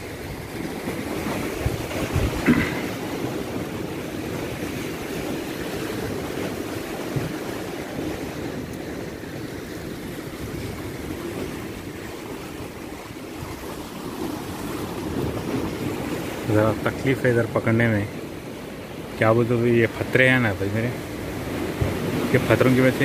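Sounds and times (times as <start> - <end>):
wind on microphone: 0.0 - 16.5
sea waves washing against breakwater: 0.0 - 23.0.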